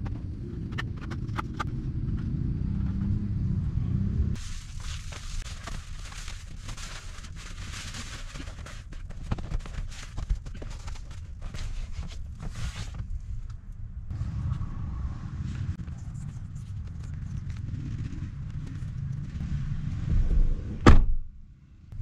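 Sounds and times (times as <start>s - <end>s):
low rumble: 0.0s - 4.6s, 13.2s - 22.0s
foil sunshade crinkling: 4.4s - 12.8s.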